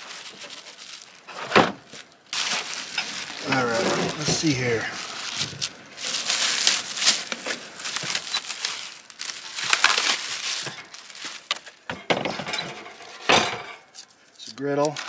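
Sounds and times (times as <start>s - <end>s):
plastic wrapping crinkling: 0.0s - 11.9s, 13.9s - 15.0s.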